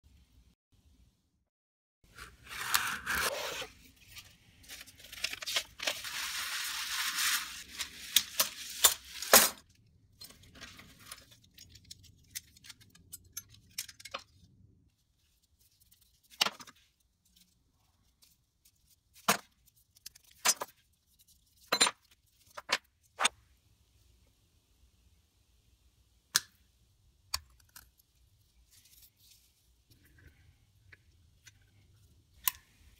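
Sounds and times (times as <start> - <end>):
packaging ripping and rustling: 4.6 - 9.4.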